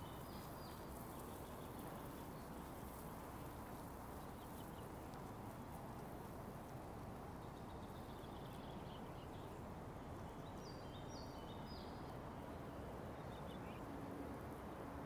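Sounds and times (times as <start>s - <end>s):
songbird singing: 0.0s - 5.4s, 7.1s - 15.0s
steady low background noise: 0.0s - 15.0s.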